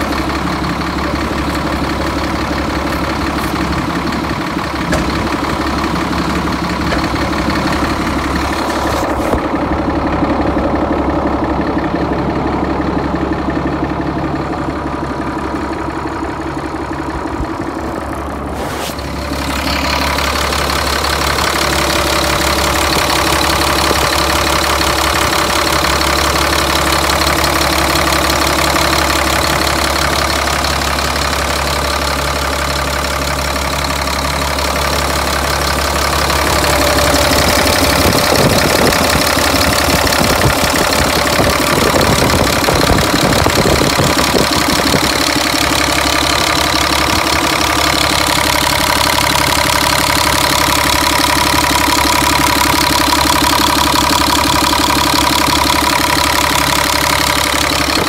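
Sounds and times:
diesel engine idling: 0.0 - 58.0.

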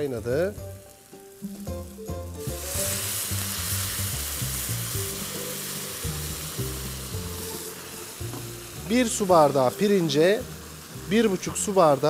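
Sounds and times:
background music: 0.0 - 12.0
stock sizzling in hot pan: 0.0 - 12.0.

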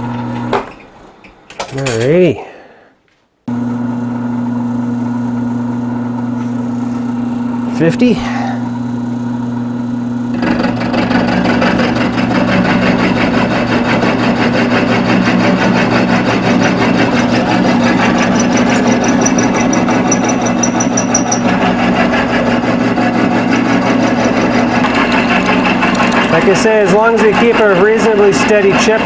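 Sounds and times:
motor hum: 3.5 - 29.0
mill grinding cut into metal: 10.3 - 29.0.

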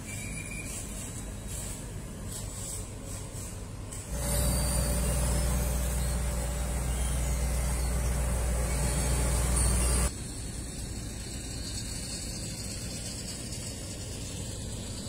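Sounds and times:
diesel engine droning: 4.1 - 10.5.

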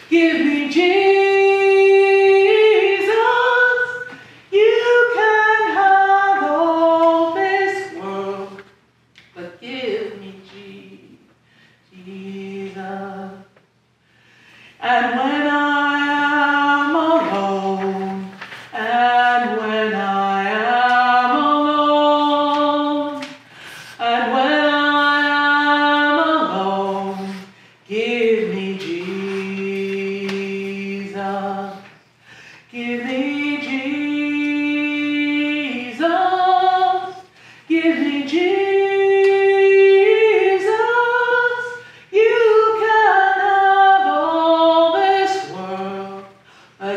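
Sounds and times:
woman singing unaccompanied: 0.0 - 11.3, 11.9 - 13.6, 14.8 - 32.0, 32.6 - 46.9
woman breathing between phrases: 14.0 - 14.8, 32.2 - 32.7.

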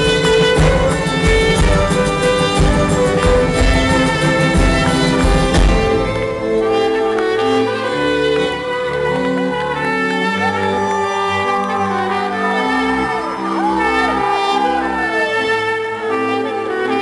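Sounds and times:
accordion: 0.0 - 17.0
brass band playing folk music: 0.0 - 17.0
gliding high notes: 10.2 - 15.9.

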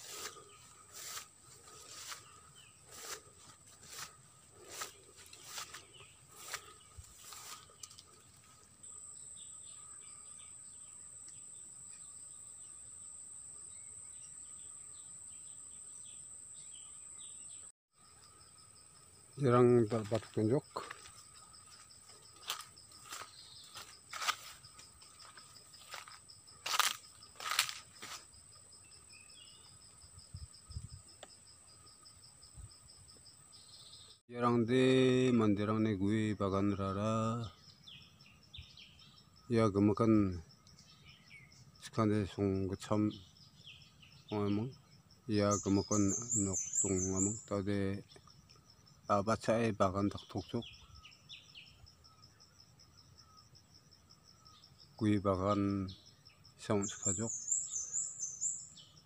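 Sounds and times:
footsteps rustling through grass: 0.0 - 8.6, 20.0 - 28.4
faint bird chirps: 0.0 - 28.2, 32.1 - 59.0
high insect drone: 0.0 - 34.2, 34.8 - 59.0.

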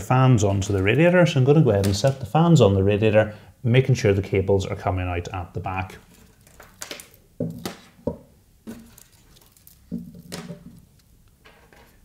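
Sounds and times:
plastic fans knocking and clattering: 9.9 - 10.8.

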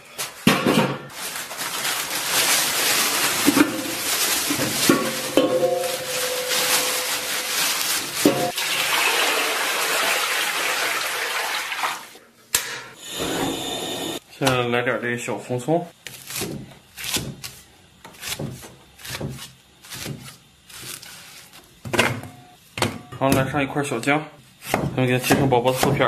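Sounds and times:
pot knocking: 4.9 - 6.1
tap water running and splashing: 8.5 - 12.2.

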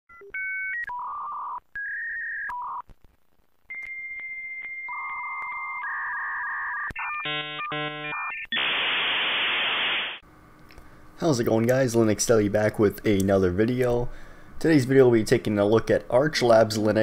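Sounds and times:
dial-up modem tones: 0.1 - 2.9, 3.7 - 10.2.

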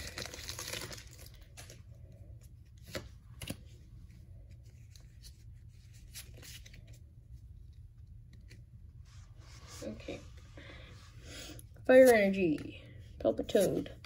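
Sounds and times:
foil pack rustling and tearing: 0.0 - 1.8.

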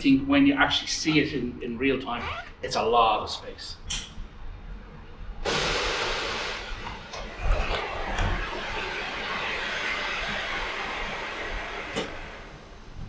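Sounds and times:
pneumatic hiss of door opening: 5.4 - 12.6.

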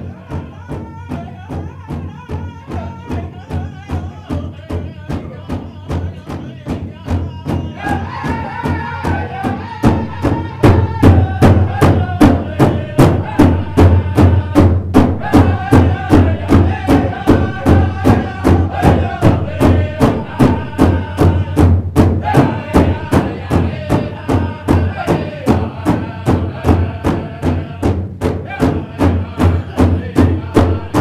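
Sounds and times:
big drum beating: 0.0 - 31.0
group singing: 0.0 - 31.0.

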